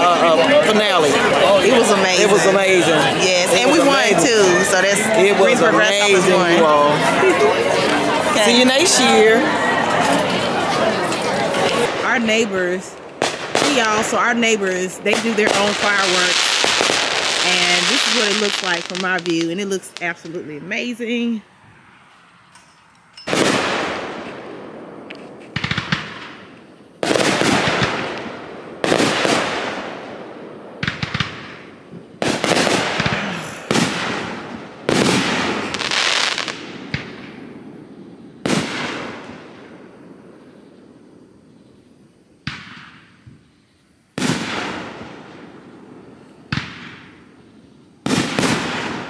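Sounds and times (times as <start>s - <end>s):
fireworks bangs: 0.0s - 22.4s, 23.3s - 41.8s, 42.4s - 49.0s.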